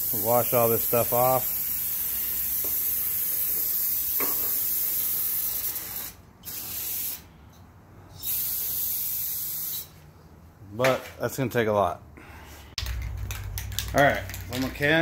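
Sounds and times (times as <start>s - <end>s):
aerosol can spraying: 0.0s - 7.2s, 8.2s - 9.9s.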